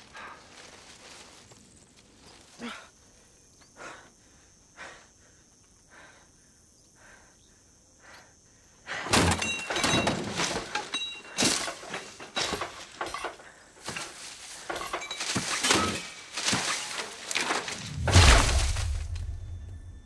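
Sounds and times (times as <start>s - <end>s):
metal wheelchair crashing down slope: 9.1s - 18.9s.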